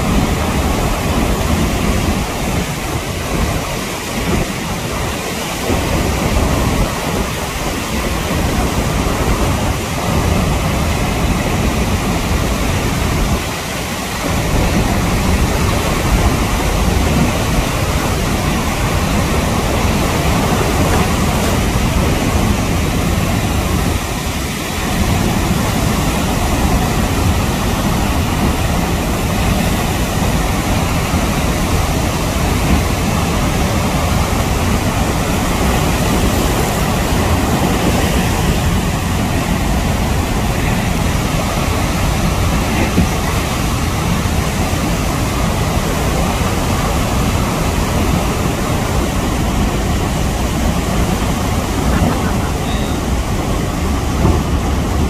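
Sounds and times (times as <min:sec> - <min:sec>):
waterfall roaring: 0:00.0 - 0:55.0.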